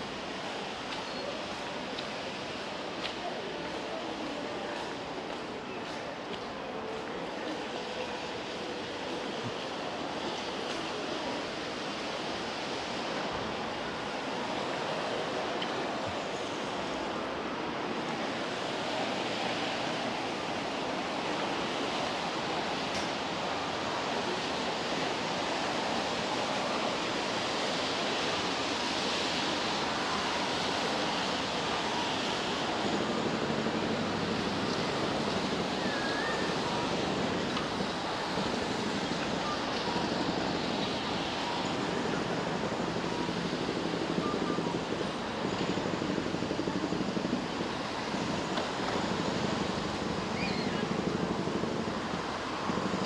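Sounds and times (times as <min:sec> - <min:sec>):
busy shopping area ambience: 0:00.0 - 0:53.0.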